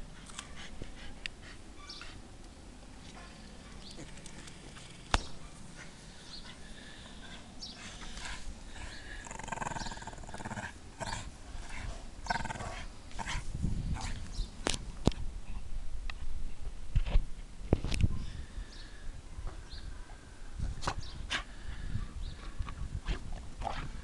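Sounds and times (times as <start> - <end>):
dog growling in play: 8.0 - 14.2.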